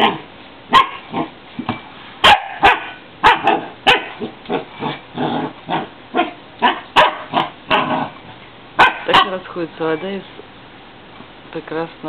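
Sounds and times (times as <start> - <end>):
dog barking and yipping: 0.0 - 1.3, 2.2 - 4.7, 5.7 - 8.1, 8.8 - 9.4.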